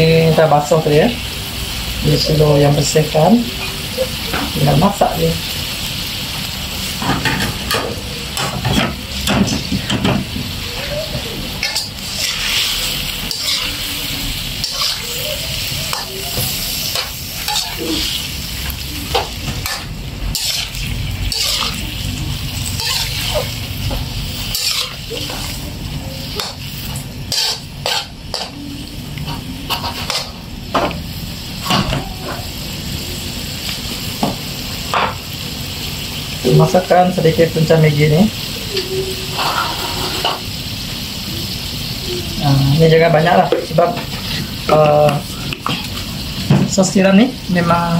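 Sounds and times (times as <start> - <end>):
food sizzling: 0.0 - 47.9
metal ladle scraping a wok: 11.6 - 25.6, 26.2 - 28.6, 39.3 - 40.4.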